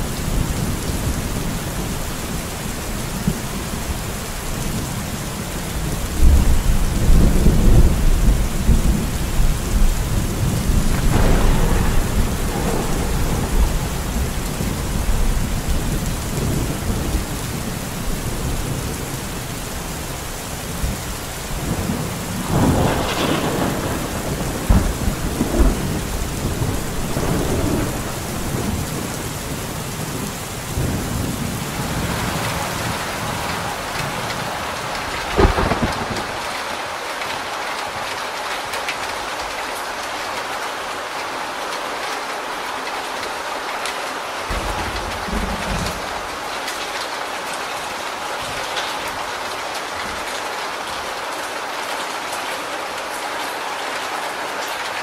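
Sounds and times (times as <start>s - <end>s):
heavy rain: 0.0s - 55.0s
water pouring off roof: 0.0s - 55.0s
thunder rumbling: 5.8s - 19.1s, 20.8s - 36.6s, 44.5s - 46.6s.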